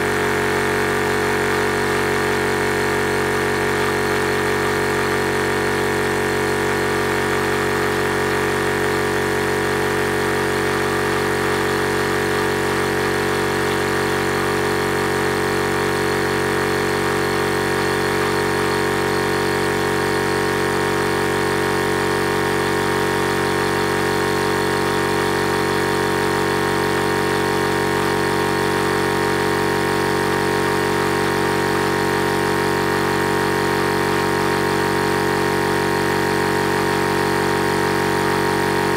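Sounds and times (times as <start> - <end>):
air compressor running: 0.0 - 38.9.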